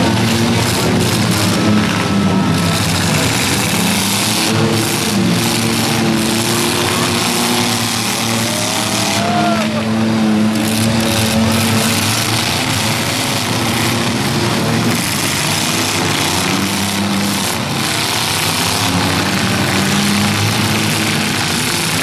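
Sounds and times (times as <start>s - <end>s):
car engines running together: 0.0s - 22.0s.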